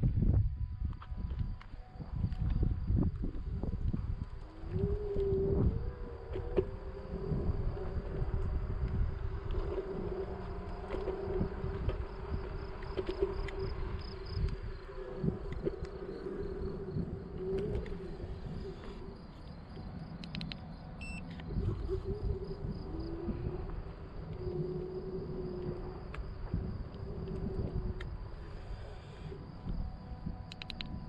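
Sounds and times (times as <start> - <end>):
wind and tyres rumbling: 0.0 - 31.0
electric motor whine: 1.4 - 20.0
light clicks: 20.2 - 21.6, 30.4 - 31.0.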